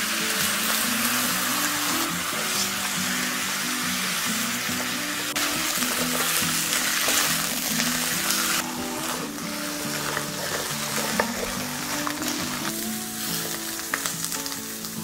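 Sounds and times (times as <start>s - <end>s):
background music: 0.0s - 15.0s
meat sizzling in a frying pan: 0.0s - 15.0s
spatula turning meat: 0.0s - 15.0s.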